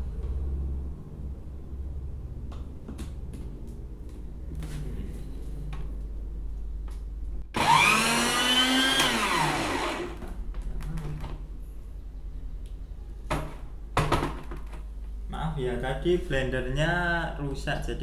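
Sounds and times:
blender motor whining: 7.5 - 10.3.

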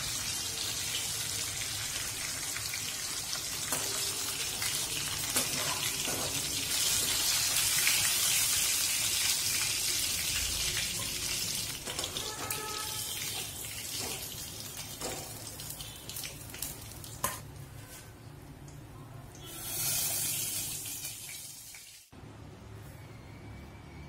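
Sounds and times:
hot oil sizzling in wok: 0.0 - 17.6, 19.4 - 22.1.

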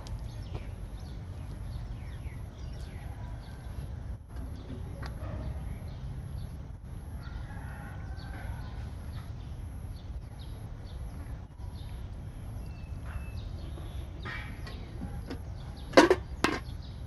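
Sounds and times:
chickens clucking: 13.0 - 16.8.

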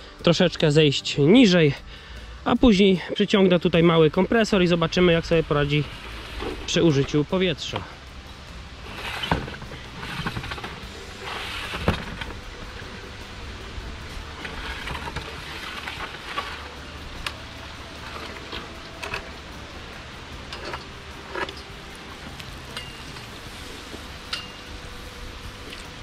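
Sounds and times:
steady hiss: 0.0 - 26.0.

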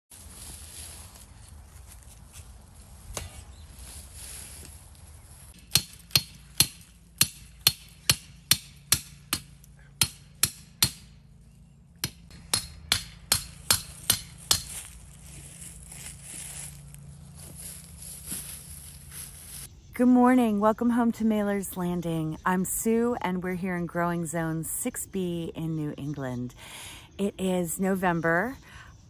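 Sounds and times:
hammer striking steel stake: 5.5 - 15.0.

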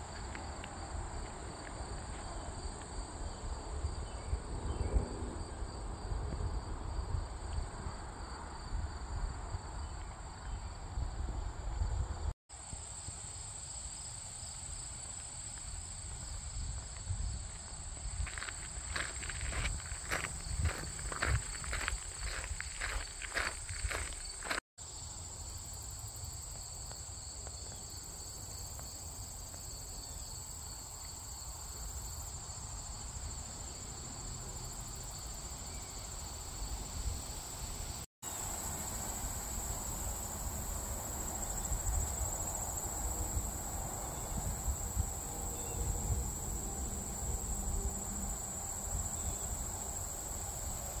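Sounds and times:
high-pitched insect trill: 12.6 - 51.0
lower insect trill: 12.6 - 51.0.

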